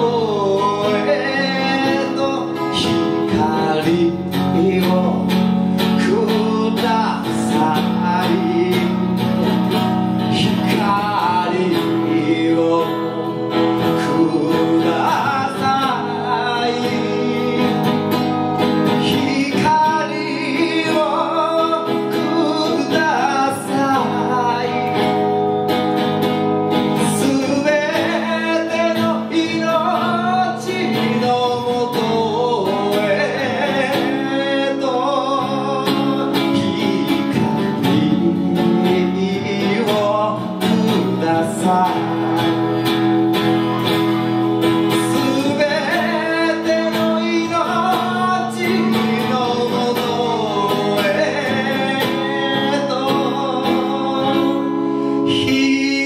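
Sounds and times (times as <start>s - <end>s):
man singing a ballad: 0.0s - 25.7s, 26.4s - 43.8s, 44.6s - 56.0s
guitar accompaniment: 0.0s - 56.0s.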